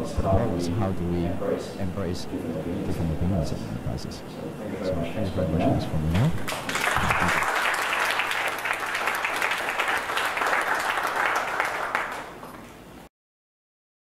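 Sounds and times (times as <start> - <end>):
audience applauding: 6.5 - 12.8.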